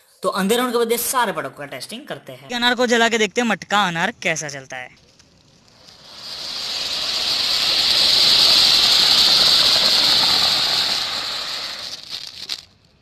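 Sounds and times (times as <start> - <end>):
fountain firework hissing: 5.3 - 12.7.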